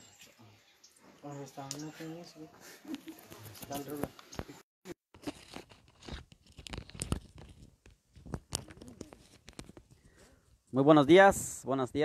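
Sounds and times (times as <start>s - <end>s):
sharp crackles and clicks: 5.2s - 10.0s.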